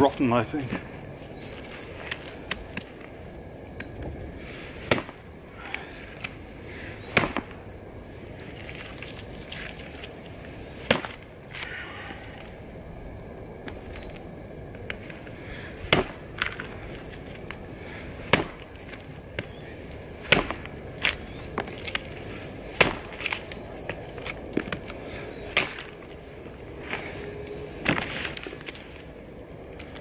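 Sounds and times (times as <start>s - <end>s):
knife chopping wood: 4.8s - 5.2s, 7.1s - 7.6s, 15.9s - 16.6s, 18.3s - 18.7s, 20.2s - 21.9s, 22.8s - 23.4s
wood cracking: 8.4s - 12.5s, 15.9s - 29.1s.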